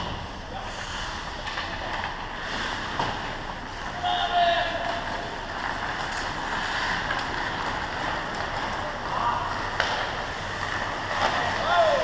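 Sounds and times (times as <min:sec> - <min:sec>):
arena noise: 0:00.0 - 0:12.0
distant shout: 0:03.9 - 0:05.2, 0:11.3 - 0:12.0.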